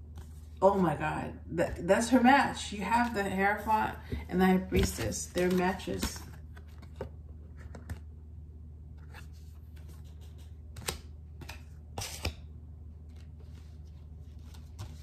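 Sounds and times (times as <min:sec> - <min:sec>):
cards clicking and rustling: 0:04.8 - 0:08.0, 0:09.7 - 0:12.4.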